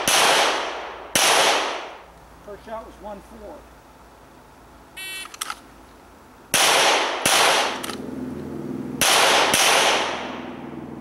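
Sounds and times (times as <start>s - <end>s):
pistol shots with echo: 0.0s - 2.0s, 6.5s - 7.8s, 9.0s - 10.4s.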